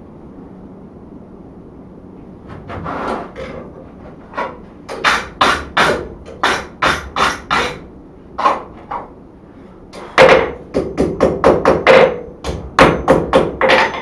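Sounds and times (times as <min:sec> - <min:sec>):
hammer blows on wooden block: 0:04.9 - 0:07.8.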